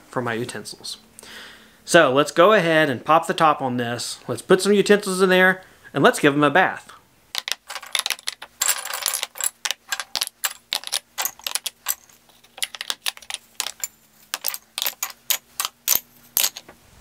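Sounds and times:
wooden utensils clattering in plastic: 7.4s - 16.7s.

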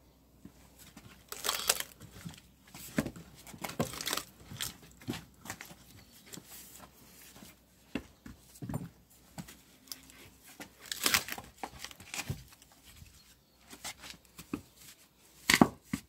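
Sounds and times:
wood creaking and cracking: 1.0s - 6.4s, 9.9s - 13.0s.

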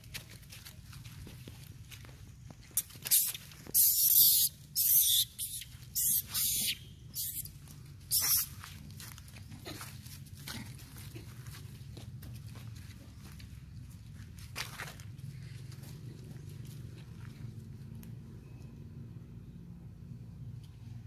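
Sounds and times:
monkey screaming: 3.1s - 7.5s, 8.1s - 8.5s.

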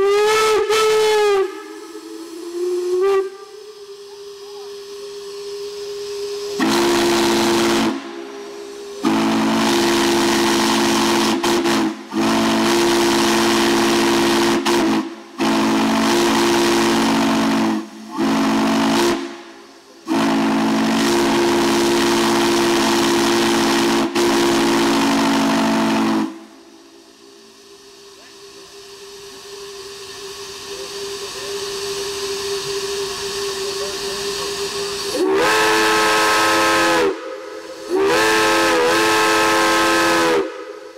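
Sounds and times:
chime steam whistle blasts: 0.0s - 28.0s, 29.0s - 40.9s
steam hissing softly: 0.0s - 40.9s.

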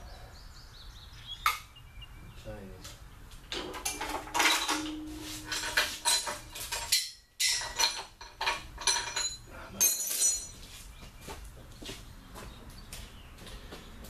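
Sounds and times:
steel chain clinking: 3.9s - 10.6s.

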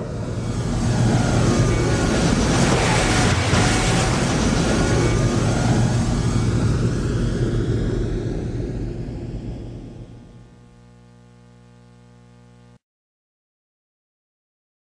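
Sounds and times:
loud steady rushing noise: 0.0s - 10.9s
low hum: 0.0s - 12.8s.

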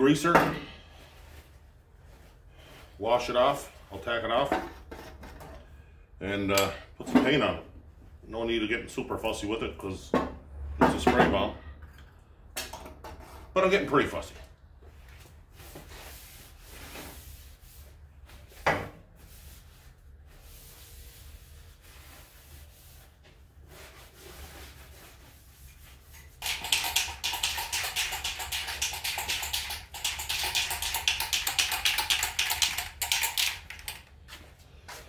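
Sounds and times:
cloth rustling and rubbing: 14.8s - 26.4s.

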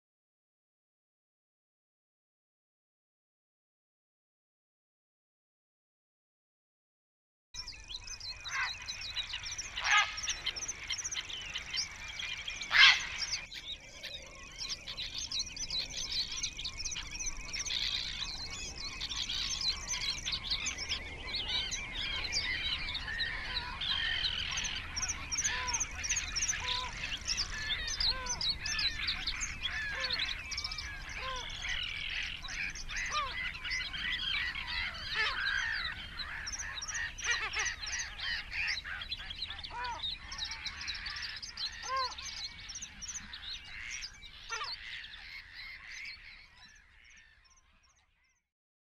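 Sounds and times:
birds chirping and whistling: 7.6s - 48.0s
loud bird calls: 7.6s - 48.4s.

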